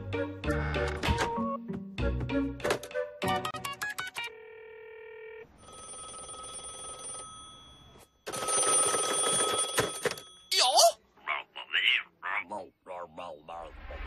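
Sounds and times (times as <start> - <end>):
telephone bell ringing: 4.2 - 10.6.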